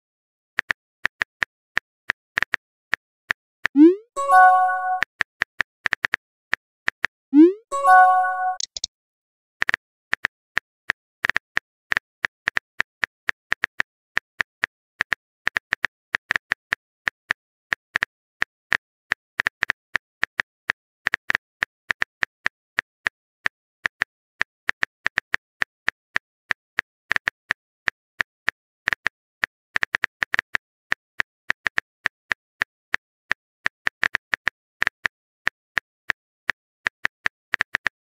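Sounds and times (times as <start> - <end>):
typing clicks: 7.8 - 8.9.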